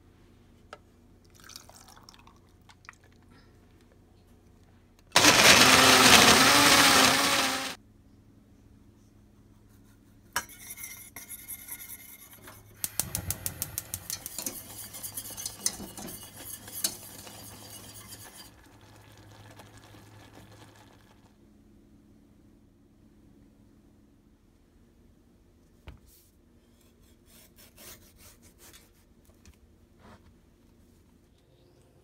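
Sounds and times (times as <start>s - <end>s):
blender running: 5.2s - 7.8s
whisk clinking in metal saucepan: 14.0s - 18.6s.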